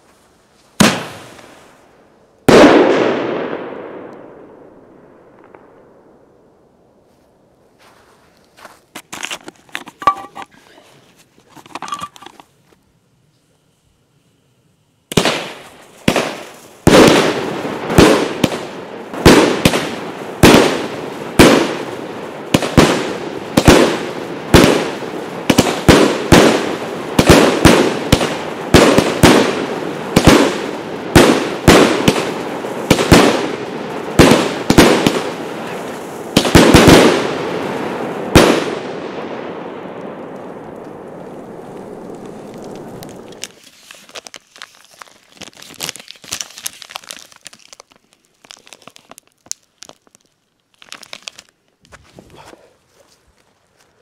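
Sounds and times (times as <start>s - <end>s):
firework bangs: 0.8s - 6.6s, 15.1s - 43.6s.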